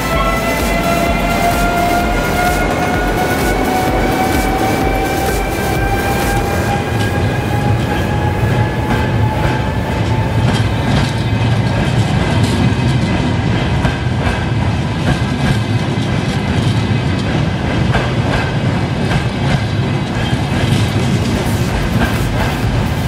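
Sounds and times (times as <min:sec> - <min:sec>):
train rumbling past: 0:00.0 - 0:23.0
wheels clacking over rail joints: 0:00.0 - 0:23.0.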